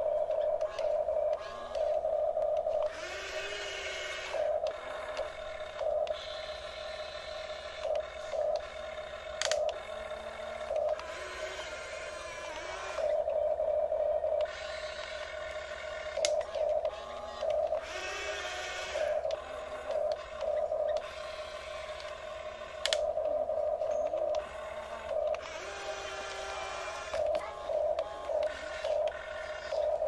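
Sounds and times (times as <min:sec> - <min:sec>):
electric gear motors whining: 0:00.0 - 0:30.0
sharp clicks: 0:09.4 - 0:09.9, 0:16.1 - 0:21.1, 0:21.9 - 0:24.5.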